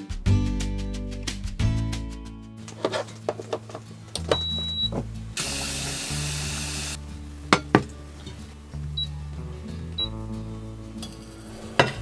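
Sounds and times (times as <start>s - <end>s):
soft background music: 0.0s - 12.0s
short electronic beep: 4.3s - 4.9s
hiss: 5.4s - 7.0s.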